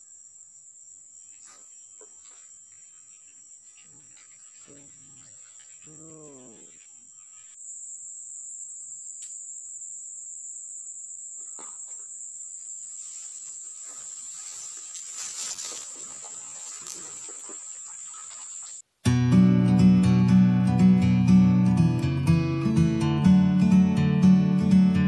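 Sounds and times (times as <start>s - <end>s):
insects droning: 0.0s - 18.8s
rustling and brushing: 12.7s - 18.8s
acoustic guitar music: 19.0s - 25.0s.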